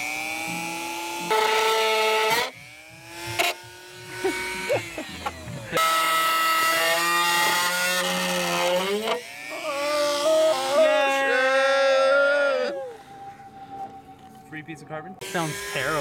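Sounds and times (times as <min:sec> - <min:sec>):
cut-off wheel grinding: 0:00.0 - 0:14.4, 0:15.2 - 0:16.0
rotary tool motor whine: 0:00.0 - 0:14.6, 0:15.2 - 0:16.0.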